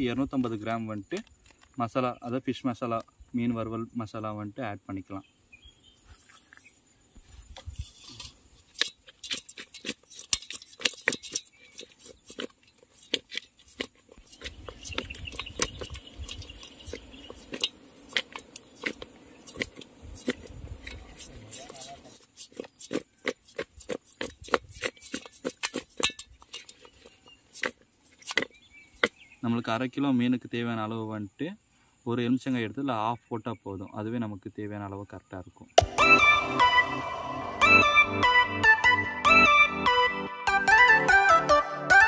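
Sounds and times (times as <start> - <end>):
fish tossed in metal bowl: 7.9 - 28.5.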